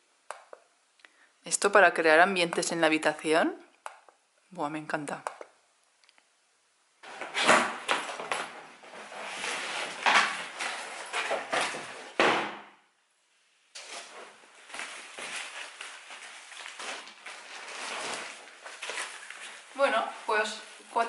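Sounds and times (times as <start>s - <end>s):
packaging rustling and crinkling: 7.0s - 12.2s, 13.8s - 20.9s.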